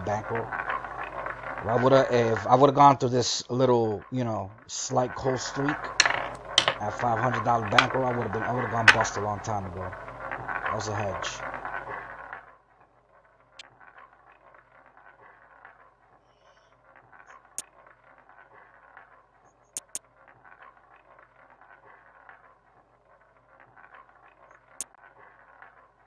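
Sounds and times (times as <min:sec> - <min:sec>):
computer mouse clicks: 0:19.8 - 0:20.0.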